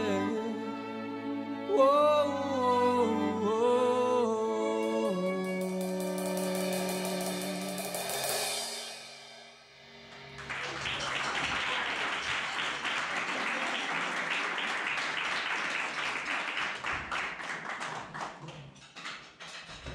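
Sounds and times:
final chord ringing out: 0:04.8 - 0:10.4
crash cymbal: 0:05.4 - 0:10.4
audience applauding: 0:10.2 - 0:19.0.

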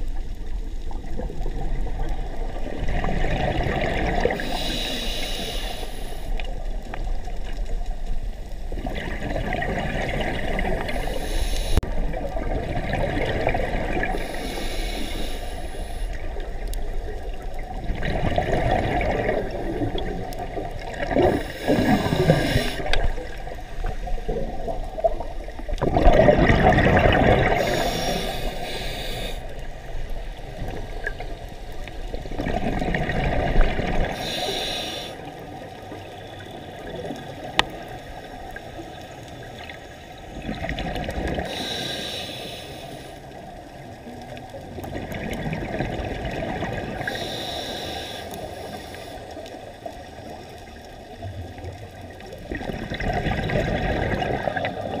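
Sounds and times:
exhaled bubbles burbling: 0:00.0 - 0:04.4, 0:08.6 - 0:11.0, 0:11.8 - 0:14.4, 0:16.2 - 0:28.6, 0:30.4 - 0:34.2, 0:40.3 - 0:41.5, 0:44.6 - 0:47.1, 0:51.2 - 0:55.0
hissing regulator inhalations: 0:04.2 - 0:06.5, 0:10.8 - 0:11.8, 0:14.0 - 0:16.4, 0:21.1 - 0:23.1, 0:27.5 - 0:29.7, 0:34.1 - 0:35.4, 0:41.4 - 0:43.4, 0:47.0 - 0:49.6.

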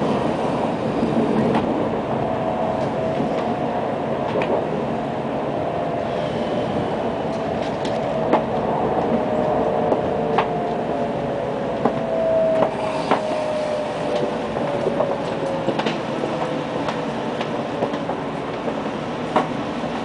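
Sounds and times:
train running tone: 0:00.0 - 0:20.0.

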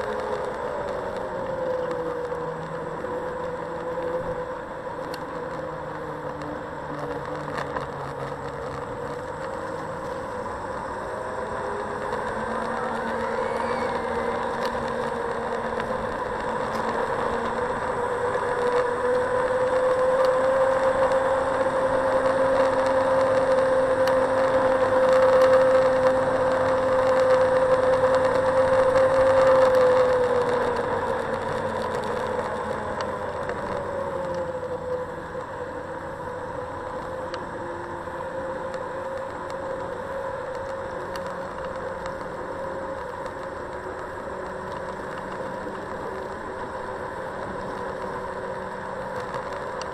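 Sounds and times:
electric scooter motor whining: 0:00.0 - 0:49.9
tyre and road rumble: 0:00.0 - 0:49.9.

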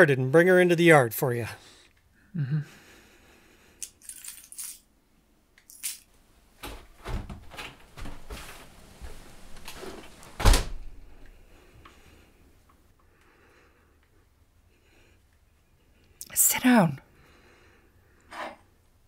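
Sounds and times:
shuffling and knocks: 0:06.6 - 0:11.3
door shutting thump: 0:10.4 - 0:10.8.

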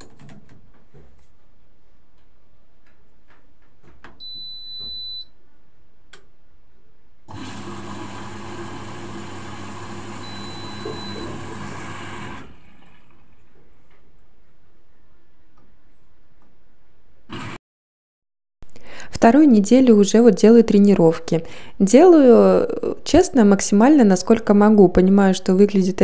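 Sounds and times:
washing machine beep: 0:04.2 - 0:05.4, 0:09.6 - 0:12.4.

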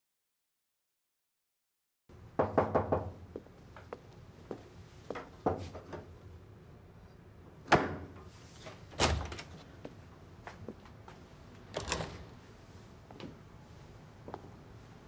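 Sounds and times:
door handle and lock rattling: 0:11.7 - 0:12.2.

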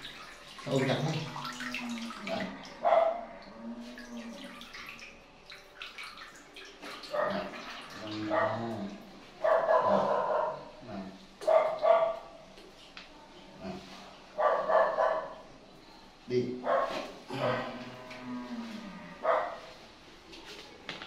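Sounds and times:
faint water sounds: 0:00.0 - 0:20.9
bark-like animal calls: 0:09.4 - 0:10.7.

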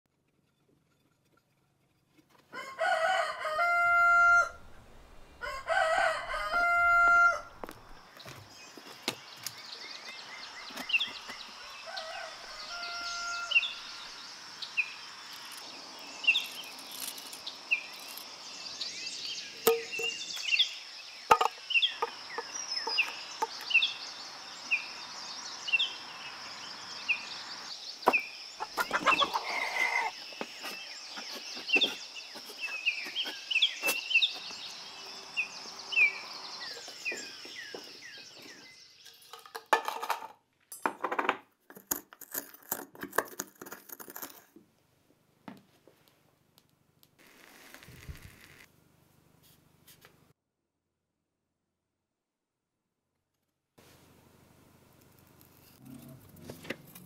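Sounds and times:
songbird chirping: 0:02.6 - 0:39.9.

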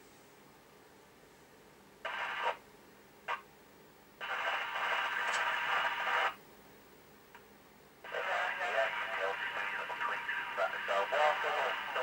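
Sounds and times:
radio speaker static hiss: 0:02.0 - 0:02.6, 0:03.2 - 0:03.5, 0:04.2 - 0:06.4, 0:08.0 - 0:12.0.

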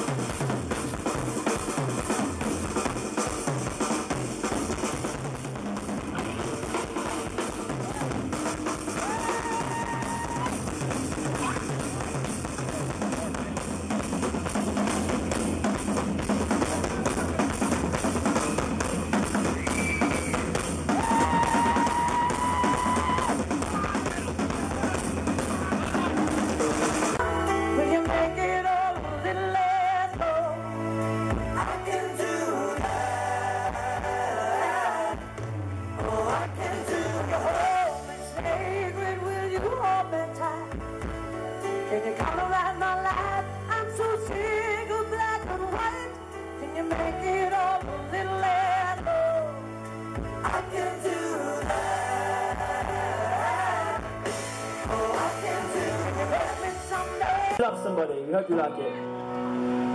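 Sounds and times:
drum kit beat: 0:00.0 - 0:28.2, 0:50.2 - 0:57.6
pop-rock band music: 0:00.0 - 0:59.9
person singing: 0:27.2 - 0:35.4, 0:36.0 - 0:40.8, 0:41.7 - 0:49.8, 0:50.4 - 0:57.9.

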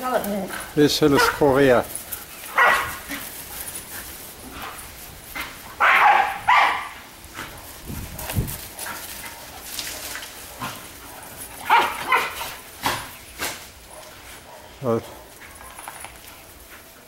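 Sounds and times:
dogs barking: 0:01.0 - 0:03.9, 0:04.5 - 0:16.0.

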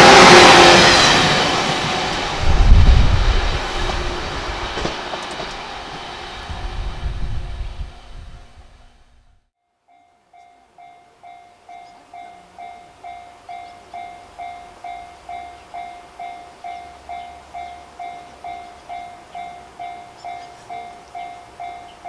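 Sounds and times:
level-crossing warning bell ringing: 0:00.0 - 0:02.6, 0:09.8 - 0:22.0.

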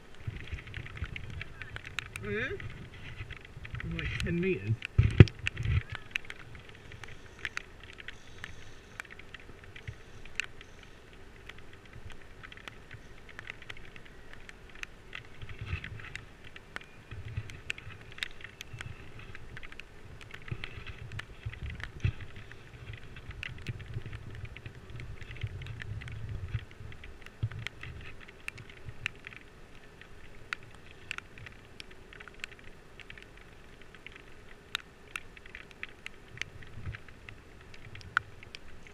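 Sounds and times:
wind buffeting microphone: 0:00.0 - 0:08.6, 0:11.6 - 0:29.2
raindrops ticking on plastic housing: 0:00.0 - 0:38.9.

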